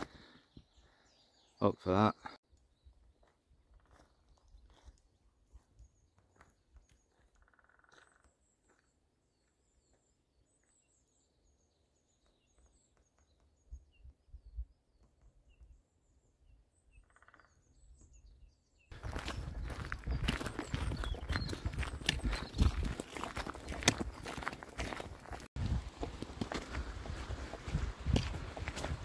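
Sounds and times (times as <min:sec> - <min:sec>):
small birds chirping: 0:00.0 - 0:29.0
low bird calls: 0:03.7 - 0:08.9, 0:09.8 - 0:25.1.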